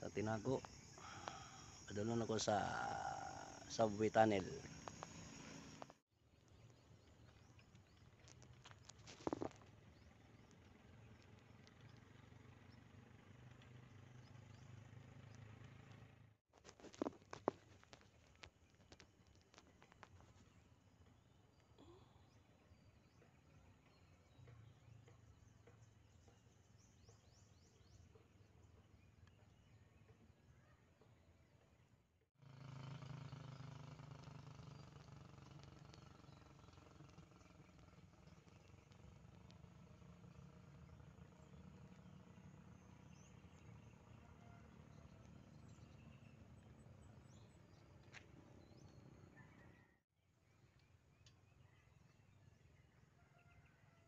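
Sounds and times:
faint bird chirps: 18.8 - 31.7, 34.4 - 54.0.

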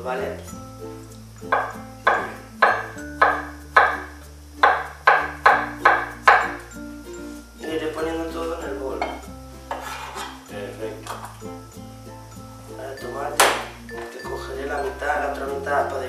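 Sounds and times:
background music: 0.0 - 16.0
knife chopping on plastic board: 1.6 - 6.6
pieces scraped into metal bowl: 9.7 - 10.4.

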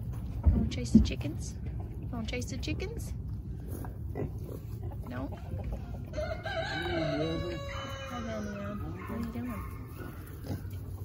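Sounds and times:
rooster crowing: 6.1 - 8.8.

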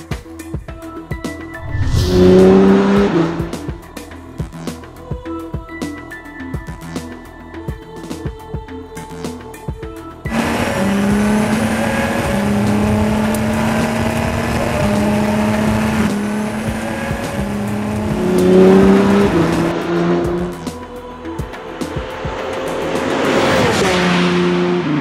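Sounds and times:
race car engine accelerating: 1.6 - 3.9, 10.3 - 20.8, 21.6 - 25.0.

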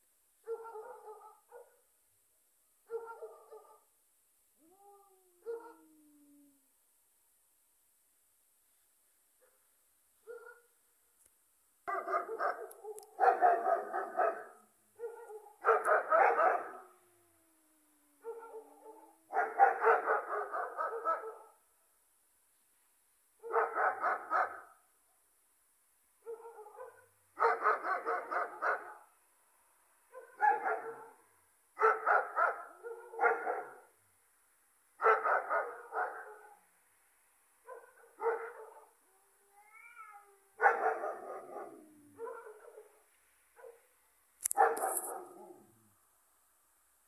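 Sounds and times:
dogs barking: 0.5 - 1.8, 2.9 - 3.8, 11.9 - 16.8, 18.2 - 21.5, 23.4 - 24.6, 26.3 - 29.0, 30.2 - 31.2, 31.8 - 33.8, 35.0 - 36.6, 37.7 - 38.9, 40.6 - 43.0, 44.6 - 45.6
low cat yowl: 4.6 - 6.6, 39.2 - 42.3.

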